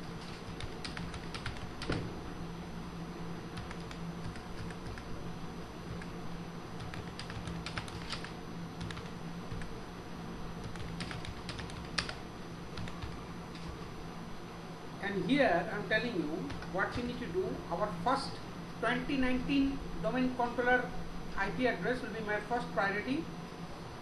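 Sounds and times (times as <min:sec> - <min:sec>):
steady low hum: 0:00.0 - 0:24.0
keyboard keys tapping: 0:00.2 - 0:02.1, 0:03.6 - 0:05.1, 0:06.8 - 0:09.7, 0:10.6 - 0:12.2, 0:12.8 - 0:13.7.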